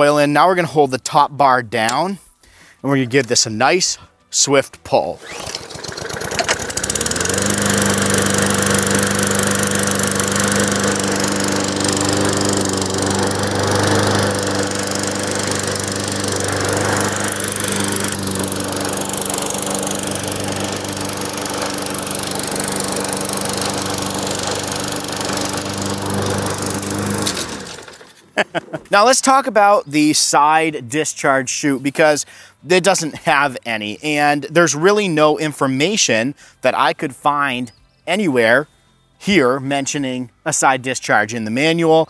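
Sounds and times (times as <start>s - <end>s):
lawn mower engine running: 5.2s - 28.2s.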